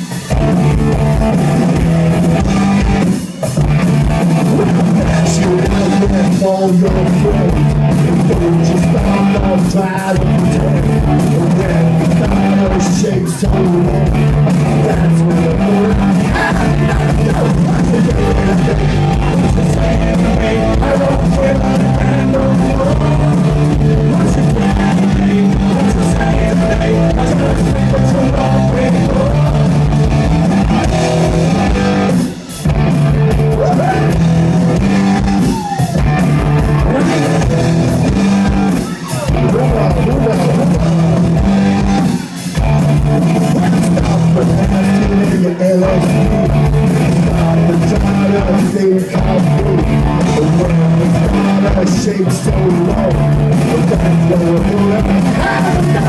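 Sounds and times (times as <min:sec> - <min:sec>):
punk rock band playing live: 0:00.0 - 0:56.0
person singing into microphone: 0:04.4 - 0:29.9, 0:36.6 - 0:37.9, 0:43.4 - 0:56.0.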